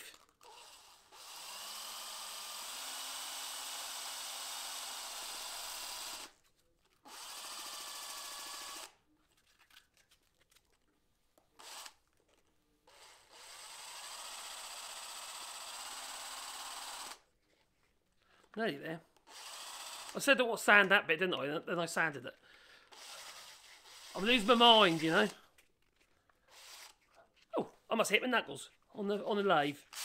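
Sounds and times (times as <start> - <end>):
electric drill whining: 0.0 - 6.4, 7.0 - 9.0, 11.6 - 12.0, 12.9 - 17.3, 19.2 - 20.2, 22.8 - 25.4, 26.5 - 27.0.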